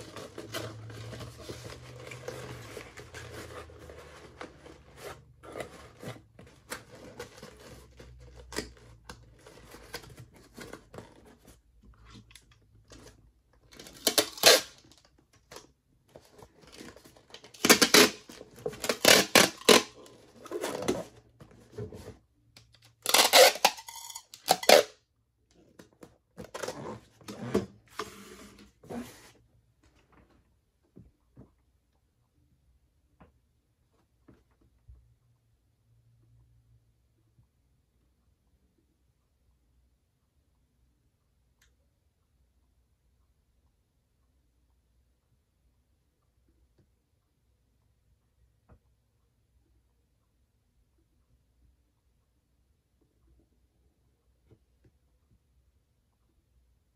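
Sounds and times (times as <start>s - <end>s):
packing tape pulled off roll: 14.0s - 15.0s, 23.0s - 24.9s.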